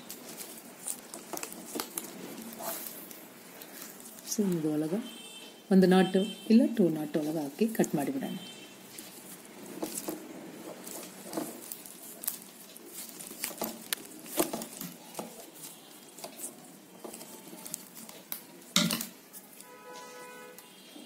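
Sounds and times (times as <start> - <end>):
plastic wire clicking and rustling: 0.0 - 4.6, 8.9 - 19.7.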